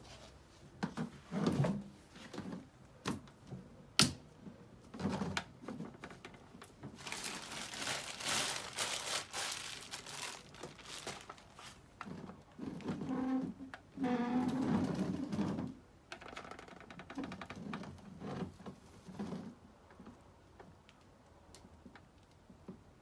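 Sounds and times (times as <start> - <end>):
rustling: 6.8 - 13.0.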